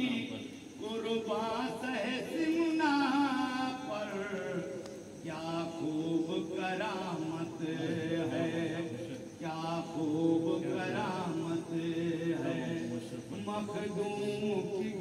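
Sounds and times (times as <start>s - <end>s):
man singing through microphone: 0.0s - 15.0s.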